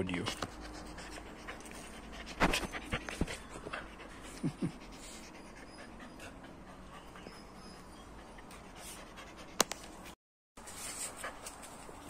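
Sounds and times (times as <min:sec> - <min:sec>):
dog panting: 0:00.1 - 0:09.6
dog whining: 0:02.4 - 0:08.6.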